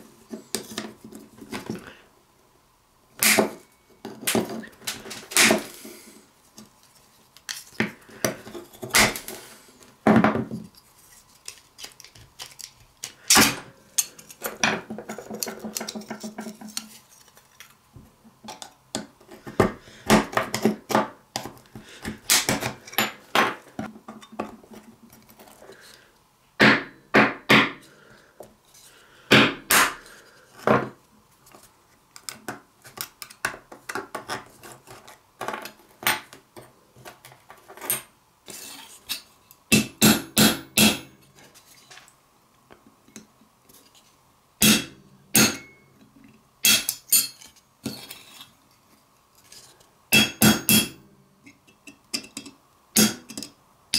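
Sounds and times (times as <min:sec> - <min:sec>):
metallic clinks and scrapes of knife parts: 0:46.8 - 0:48.5.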